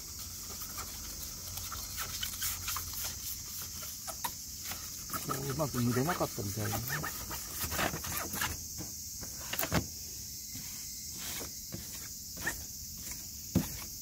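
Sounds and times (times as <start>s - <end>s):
steady high hiss: 0.0s - 14.0s
sandpaper scraping painted metal: 0.8s - 8.6s.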